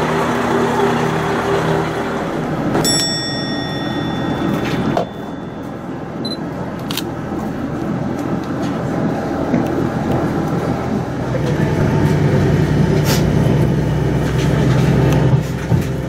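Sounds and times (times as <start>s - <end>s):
diesel railcar rumble: 0.0s - 16.0s
high ringing tone: 2.2s - 6.6s.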